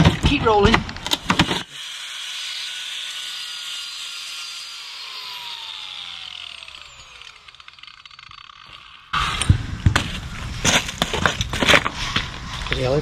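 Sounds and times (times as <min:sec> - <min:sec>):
angle grinder whining: 0:01.6 - 0:09.6.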